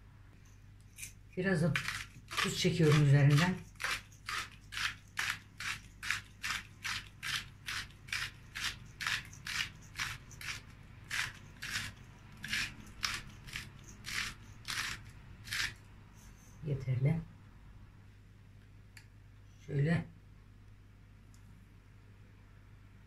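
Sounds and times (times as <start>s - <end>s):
salt grinder crunching: 1.7s - 15.8s.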